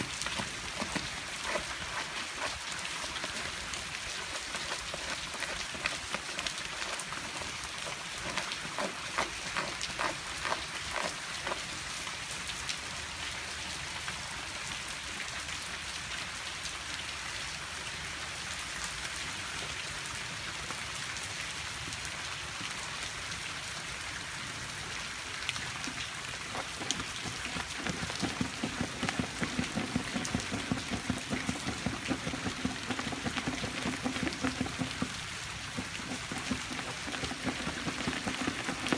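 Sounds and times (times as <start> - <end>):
puppy gnawing wooden board: 0.0 - 11.8, 26.3 - 38.9
rain falling on grass: 0.0 - 38.9.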